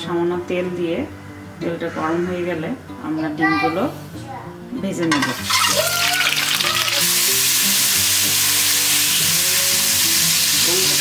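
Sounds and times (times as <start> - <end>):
oil crackling and spattering: 5.1 - 9.2
eggs sizzling in hot oil: 5.1 - 11.0.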